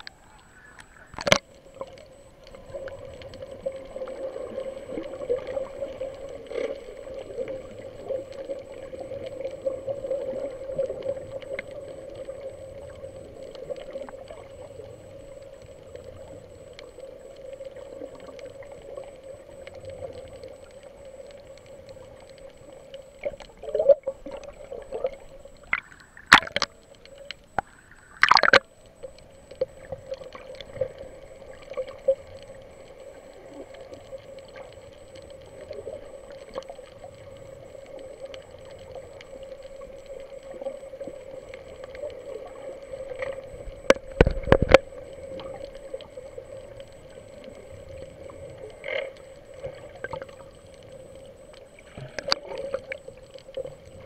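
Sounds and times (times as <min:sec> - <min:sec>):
muffled underwater hum: 0:00.0 - 0:54.0
sharp knocks underwater: 0:25.7 - 0:26.8, 0:27.6 - 0:28.7.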